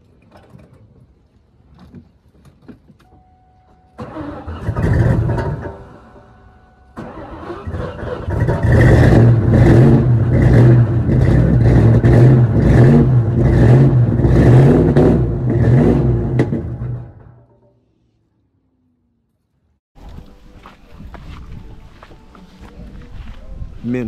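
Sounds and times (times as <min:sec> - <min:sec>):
car engine revving: 0:04.0 - 0:06.3, 0:07.0 - 0:17.4.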